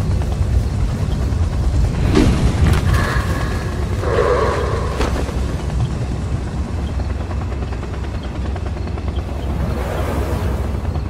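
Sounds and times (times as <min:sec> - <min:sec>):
loud low rumble: 0:01.7 - 0:06.7.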